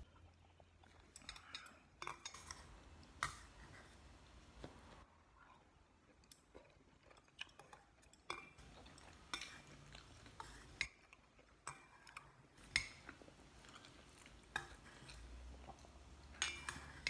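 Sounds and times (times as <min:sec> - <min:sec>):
quiet chewing: 0:00.0 - 0:17.0
chopsticks clinking on metal bowl: 0:16.3 - 0:17.0.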